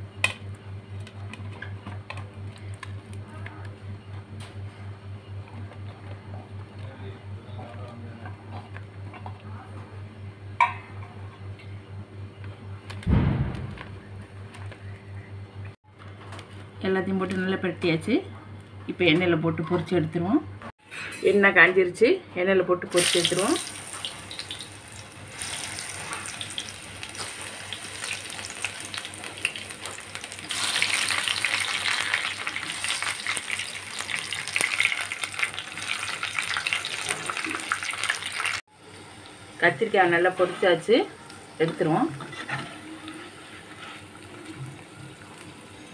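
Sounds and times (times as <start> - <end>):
food deep-frying in oil: 22.9 - 45.9.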